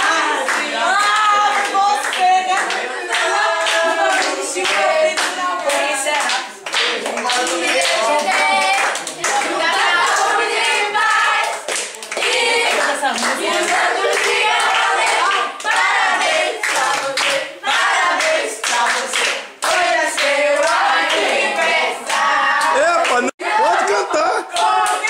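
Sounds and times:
group singing in chorus: 0.0 - 25.0
people clapping: 0.0 - 25.0.

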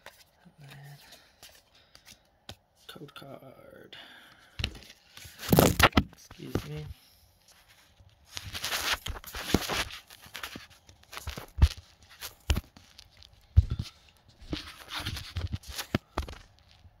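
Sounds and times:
phone handling rustling: 4.6 - 6.8.

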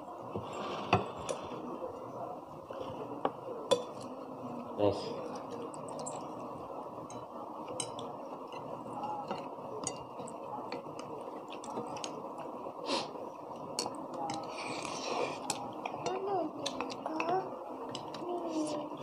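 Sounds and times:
low background noise: 0.0 - 19.0
cutlery clinking on plates: 3.7 - 4.2.

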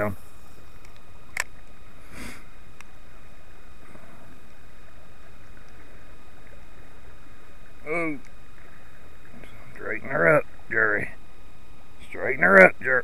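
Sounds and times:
river water rumble: 0.0 - 13.0
short breathy hiss: 2.0 - 2.6.

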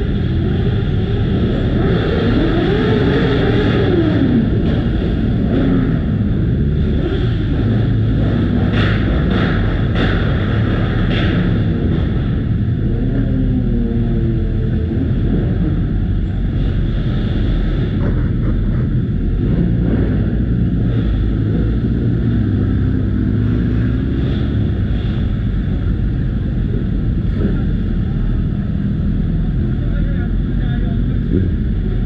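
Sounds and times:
motorcycle engine revving: 0.0 - 32.0.

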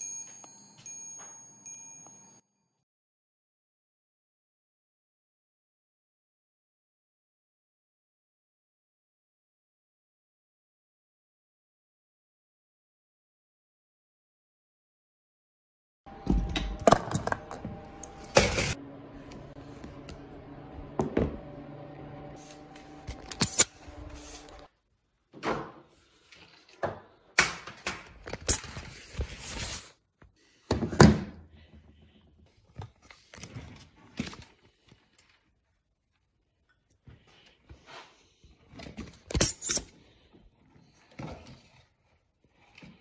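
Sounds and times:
steady multi-tone hum: 16.1 - 24.7.

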